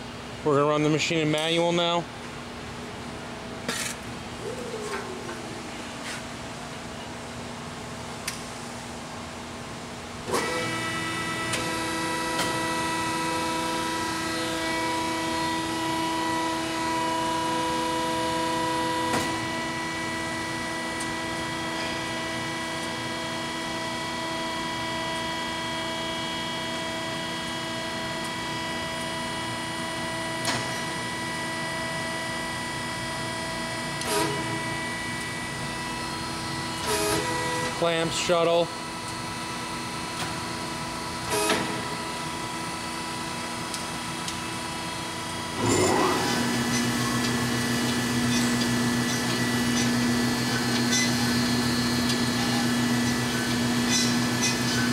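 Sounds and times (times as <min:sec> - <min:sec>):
band saw whining: 0:45.1 - 0:54.9.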